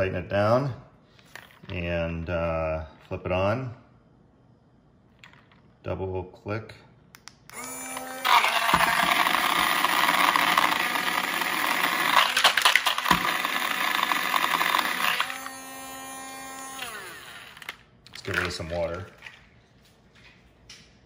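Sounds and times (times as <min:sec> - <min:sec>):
blender motor running: 0:07.5 - 0:17.9
ice rattling in blender jar: 0:08.4 - 0:15.3.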